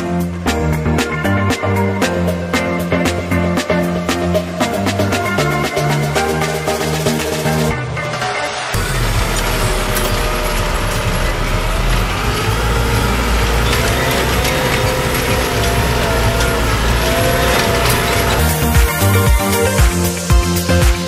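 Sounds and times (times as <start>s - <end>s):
tractor engine drone: 7.5s - 20.2s
cultivator tines rattling: 8.8s - 19.4s.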